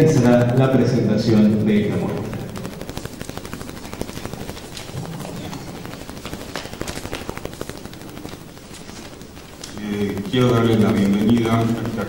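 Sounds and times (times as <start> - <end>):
audience applauding: 3.3 - 12.0.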